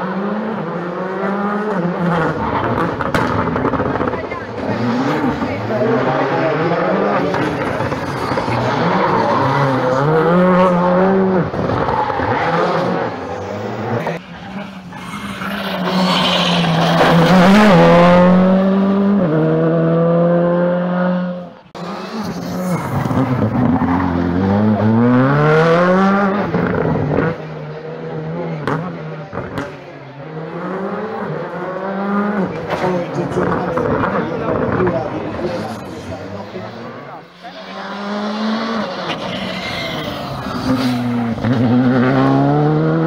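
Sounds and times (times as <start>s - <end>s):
rally car engines revving: 0.0s - 43.0s
tyre squeal: 14.6s - 17.5s, 38.8s - 41.2s.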